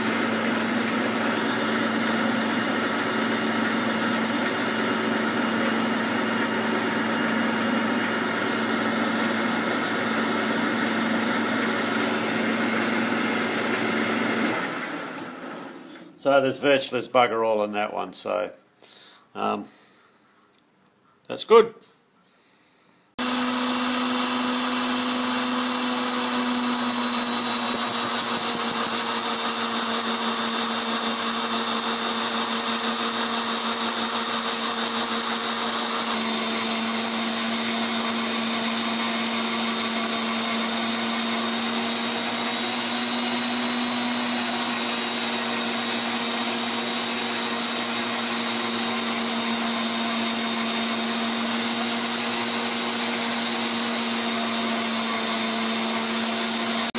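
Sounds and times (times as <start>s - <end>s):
grinder grinding steel: 23.2s - 56.9s.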